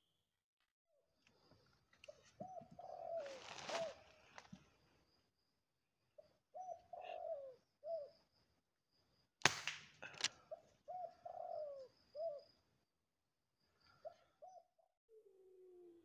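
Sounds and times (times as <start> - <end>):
dove cooing: 2.1 - 4.4, 6.5 - 8.2, 10.4 - 12.5, 14.0 - 16.0
air rifle firing crack: 9.4 - 9.8.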